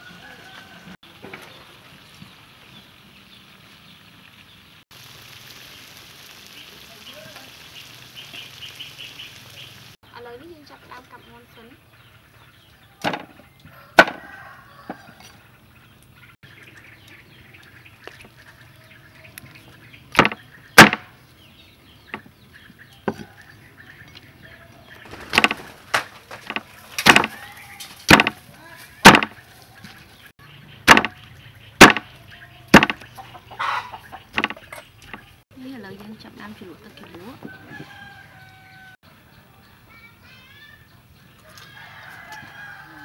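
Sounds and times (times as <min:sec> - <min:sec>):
cleaver chopping on wooden board: 0:14.0 - 0:14.2, 0:20.2 - 0:21.0, 0:26.5 - 0:27.3, 0:28.1 - 0:28.4, 0:29.0 - 0:29.4, 0:30.9 - 0:31.2, 0:31.8 - 0:32.1, 0:32.8 - 0:33.0, 0:34.4 - 0:34.6.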